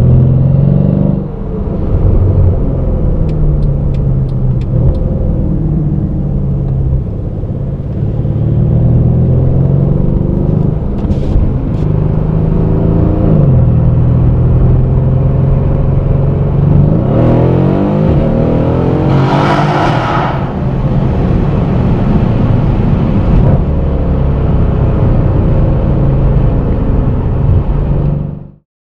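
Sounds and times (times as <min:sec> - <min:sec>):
car engine from inside cabin: 0:00.0 - 0:19.2.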